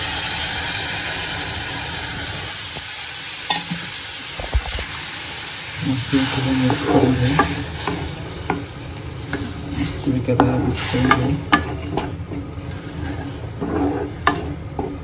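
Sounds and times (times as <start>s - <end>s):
milk sizzling in a hot pan: 0.0s - 15.0s
spatula scraping a pan: 6.1s - 15.0s.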